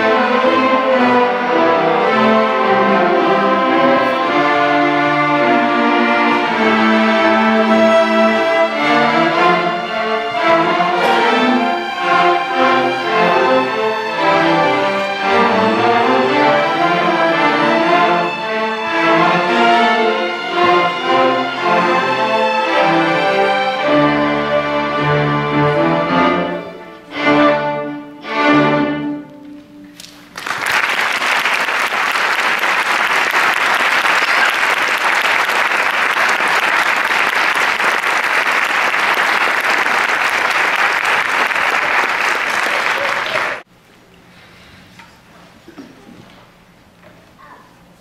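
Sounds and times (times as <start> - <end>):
string orchestra playing chords: 0.0 - 30.1
audience applauding: 30.0 - 43.6.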